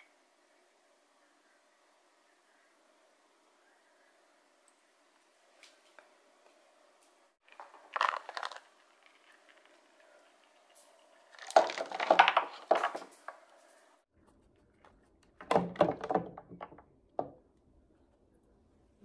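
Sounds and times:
ice balls knocking together: 7.4 - 10.6, 11.2 - 13.5.

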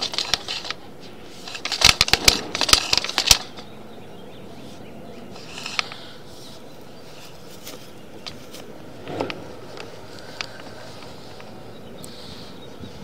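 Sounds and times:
camera cable clicking in pipe: 1.4 - 3.6.

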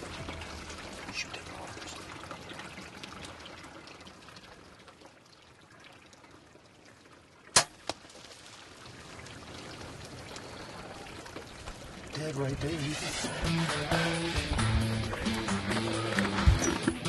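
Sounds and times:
bow shot crack: 7.6 - 8.0.

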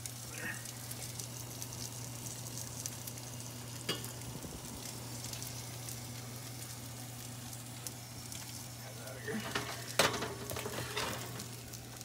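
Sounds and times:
fish sizzling and crackling: 0.0 - 12.0
steady low hum: 0.0 - 12.0.

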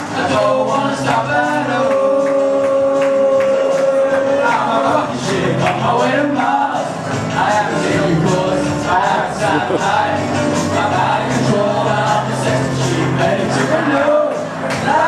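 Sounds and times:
men singing into microphones: 0.0 - 15.0
music with a steady beat: 0.0 - 15.0.

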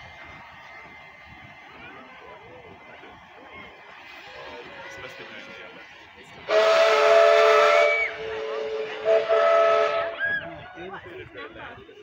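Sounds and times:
steam hiss: 1.3 - 10.2
two-tone steam whistle: 6.5 - 10.4.

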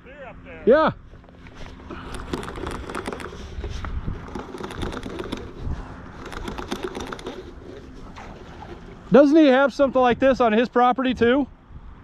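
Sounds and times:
fishing reel clicks and rattles: 2.0 - 5.6, 6.2 - 7.6
wind rumble on microphone: 2.0 - 9.2, 9.9 - 12.0.

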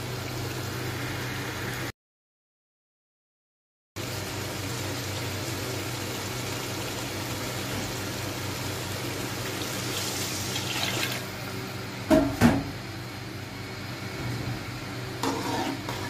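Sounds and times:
food sizzling in a pot: 0.0 - 1.9, 4.0 - 11.6, 14.8 - 16.0
water pouring: 9.2 - 11.4.

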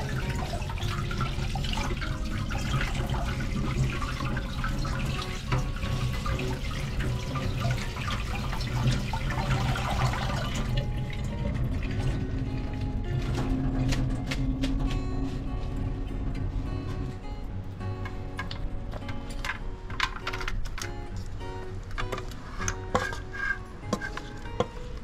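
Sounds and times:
water splashing into metal sink: 0.0 - 14.0.

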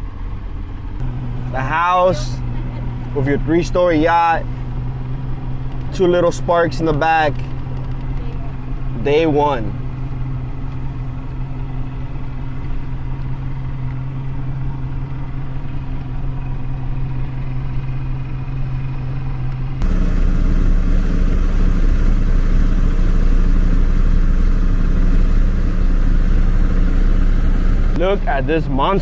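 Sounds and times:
speedboat engine running: 19.8 - 28.0.

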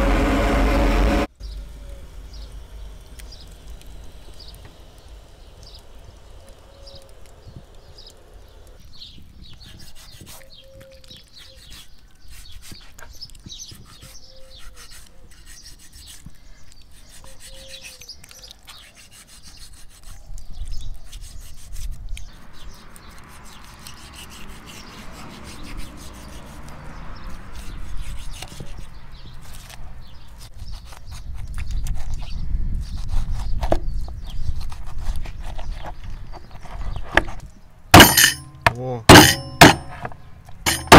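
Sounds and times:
knife cutting meat on wooden board: 39.1 - 40.9.

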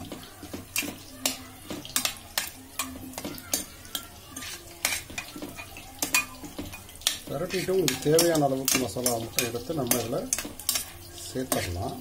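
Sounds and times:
spoon scraping metal pot: 0.0 - 12.0.

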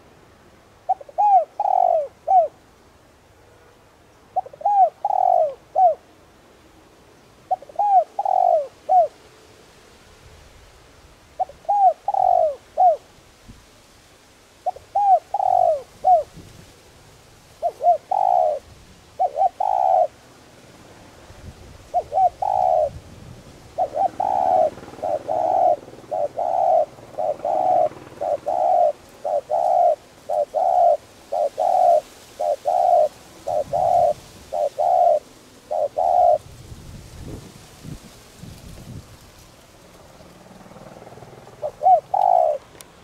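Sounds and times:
dove cooing: 0.8 - 2.6, 4.3 - 6.1, 7.4 - 9.2, 11.4 - 13.1, 14.6 - 16.4, 17.5 - 20.2, 21.8 - 36.6, 40.2 - 43.0.

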